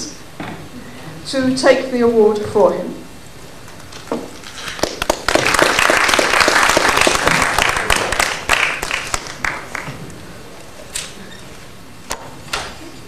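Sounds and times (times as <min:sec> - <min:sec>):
audience applauding: 0:04.7 - 0:10.0.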